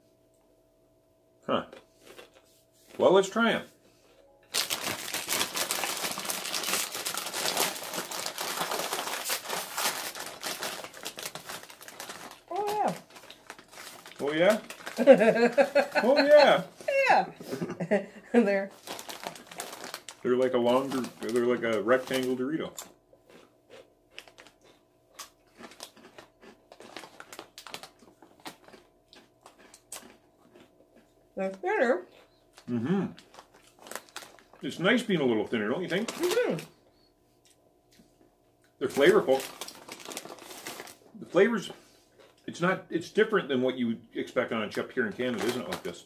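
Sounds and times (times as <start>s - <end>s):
plastic chip bag crinkling: 4.4s - 16.8s, 18.7s - 22.9s, 24.1s - 30.6s, 32.6s - 36.8s, 38.8s - 42.6s, 44.5s - 46.0s.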